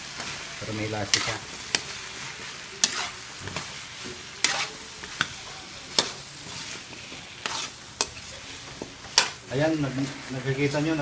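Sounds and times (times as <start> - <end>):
food sizzling in oil: 0.0 - 11.0
metal ladle scraping a wok: 1.1 - 1.9, 2.8 - 3.6, 4.4 - 5.3, 5.9 - 10.1.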